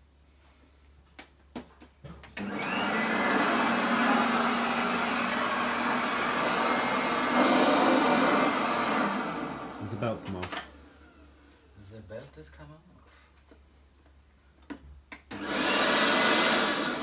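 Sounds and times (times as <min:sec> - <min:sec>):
vacuum cleaner motor: 0:02.4 - 0:11.7, 0:15.3 - 0:17.0.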